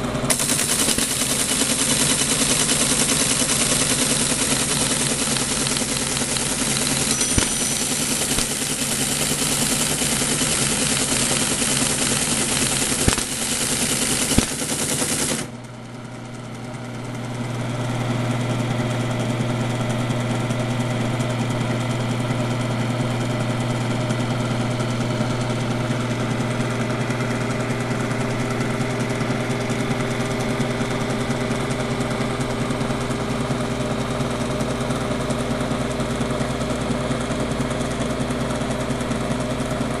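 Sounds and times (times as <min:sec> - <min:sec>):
teletype motor hum: 0:00.2 - 0:15.7
teletype mechanical clatter: 0:00.3 - 0:15.6.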